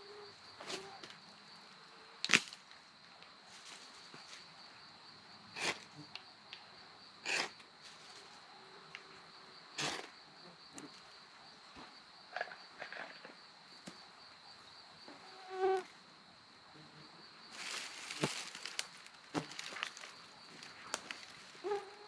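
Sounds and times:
night insects droning: 0:00.0 - 0:22.0
dry grass rustling and crackling: 0:17.5 - 0:21.6.

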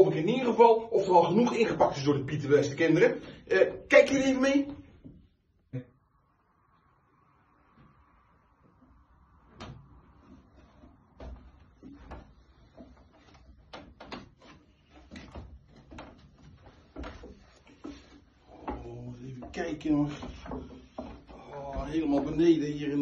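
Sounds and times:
footsteps on wooden stairs: 0:10.2 - 0:23.0.

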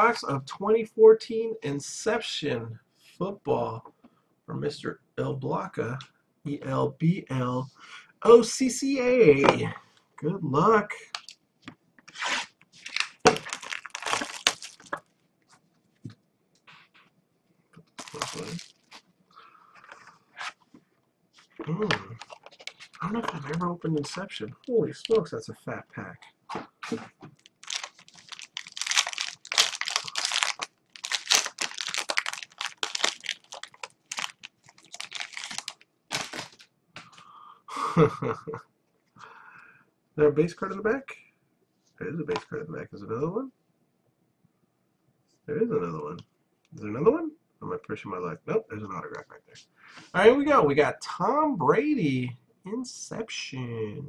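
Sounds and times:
plastic wrap crinkling and tearing: 0:12.1 - 0:15.1, 0:17.9 - 0:19.1, 0:21.8 - 0:25.3, 0:27.3 - 0:36.7.

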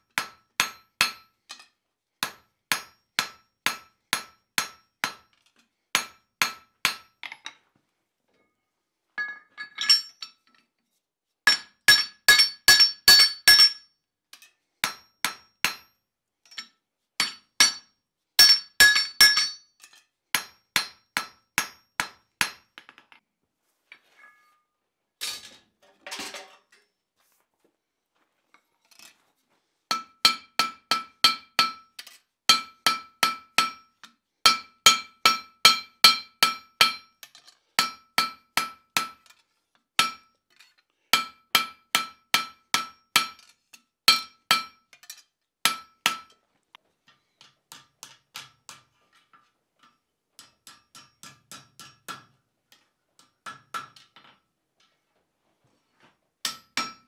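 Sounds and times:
hammer striking metal on anvil: 0:00.2 - 0:01.6, 0:02.2 - 0:05.3, 0:06.0 - 0:07.3, 0:11.5 - 0:13.8, 0:14.8 - 0:19.7, 0:20.4 - 0:22.7, 0:29.9 - 0:33.9, 0:34.5 - 0:37.2, 0:37.8 - 0:39.2, 0:40.0 - 0:40.3, 0:41.2 - 0:43.4, 0:44.1 - 0:44.8, 0:45.7 - 0:46.3, 0:47.7 - 0:48.8, 0:50.4 - 0:52.3, 0:56.4 - 0:57.0.

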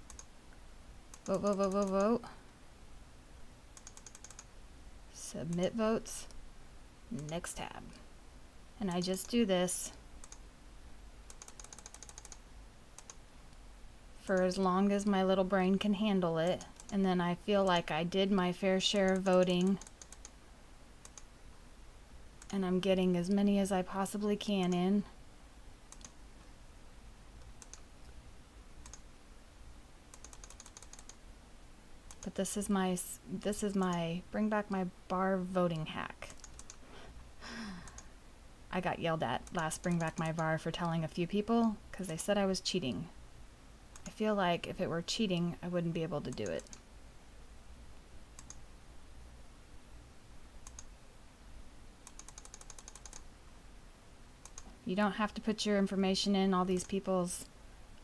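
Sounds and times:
computer mouse clicks: 0:00.0 - 0:00.3, 0:01.1 - 0:02.1, 0:03.8 - 0:04.5, 0:08.9 - 0:09.4, 0:10.2 - 0:10.4, 0:11.3 - 0:12.4, 0:13.0 - 0:13.2, 0:16.4 - 0:17.0, 0:18.9 - 0:20.4, 0:21.0 - 0:21.3, 0:25.9 - 0:26.2, 0:27.4 - 0:27.9, 0:28.8 - 0:29.0, 0:30.1 - 0:31.2, 0:32.1 - 0:32.4, 0:36.2 - 0:36.8, 0:37.8 - 0:38.1, 0:39.4 - 0:40.5, 0:43.9 - 0:44.2, 0:46.3 - 0:46.9, 0:48.4 - 0:48.6, 0:50.6 - 0:50.9, 0:52.0 - 0:53.3, 0:54.4 - 0:54.8, 0:56.7 - 0:57.0
faint computer mouse clicks: 0:00.0 - 0:00.3, 0:25.9 - 0:26.2, 0:27.4 - 0:27.8, 0:28.8 - 0:29.0, 0:36.2 - 0:36.8, 0:48.4 - 0:48.6, 0:50.6 - 0:50.9, 0:52.0 - 0:53.2, 0:54.4 - 0:54.8.

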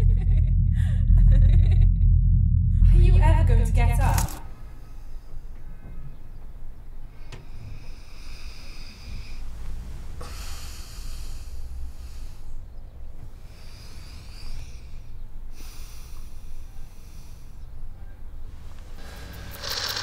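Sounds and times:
low steady rumble: 0:00.0 - 0:05.8, 0:09.0 - 0:19.8
person breathing heavily: 0:07.4 - 0:09.6, 0:10.2 - 0:12.7, 0:13.3 - 0:17.8.

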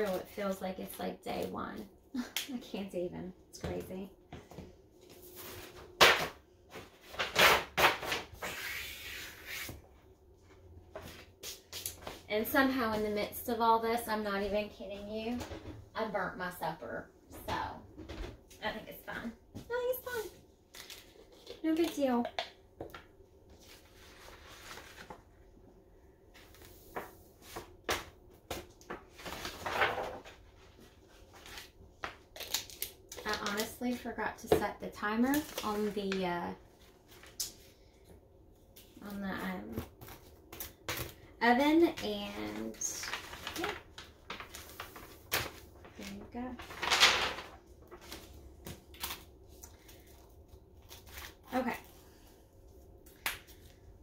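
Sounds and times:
paper rustling: 0:23.5 - 0:25.3, 0:28.9 - 0:32.8, 0:42.5 - 0:50.2
paper rustling and sliding: 0:23.6 - 0:25.2, 0:29.1 - 0:31.7.

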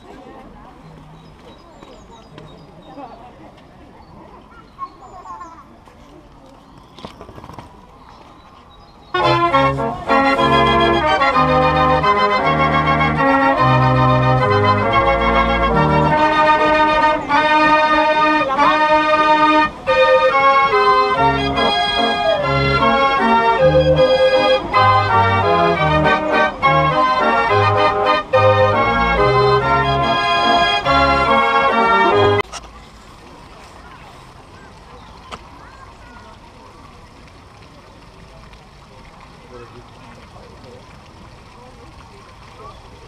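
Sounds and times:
street organ playing a tune: 0:09.0 - 0:32.5.

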